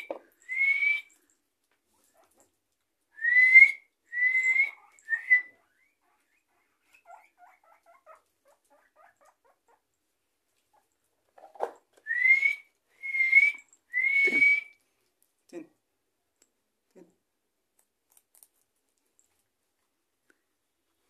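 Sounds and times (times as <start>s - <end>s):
guinea pigs wheeking: 4.5s - 9.9s.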